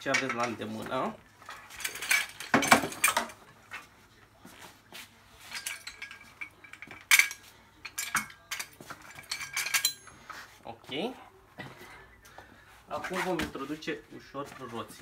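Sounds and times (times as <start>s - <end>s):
metal stands clanking on tile: 0.0s - 3.5s, 5.4s - 10.3s
chains clinking: 1.5s - 3.4s, 5.4s - 10.2s.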